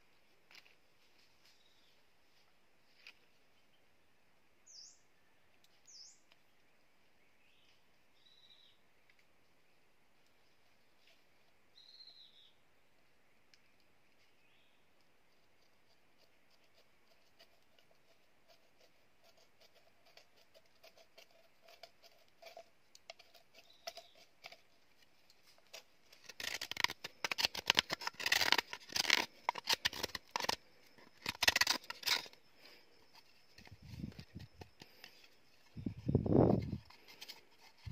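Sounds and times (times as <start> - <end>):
knife scraping bamboo: 15.3 - 37.9.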